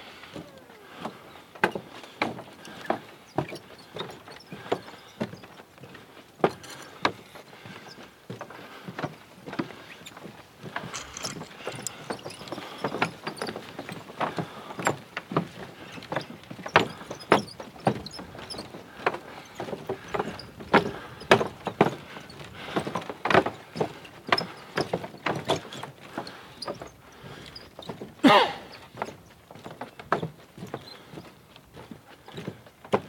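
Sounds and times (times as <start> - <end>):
footsteps on wooden boardwalk: 0.0 - 33.0
creaking squeak: 10.8 - 14.0, 16.8 - 18.6.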